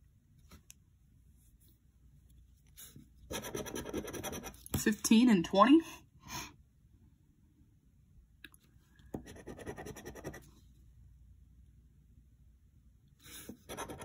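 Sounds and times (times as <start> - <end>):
coin scratching lottery ticket: 3.3 - 4.6, 13.7 - 14.0.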